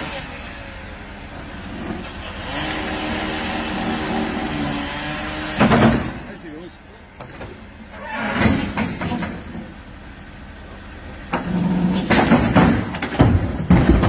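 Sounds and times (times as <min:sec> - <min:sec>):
heavy impacts: 0:11.2 - 0:14.0
sudden crack: 0:12.0 - 0:14.0.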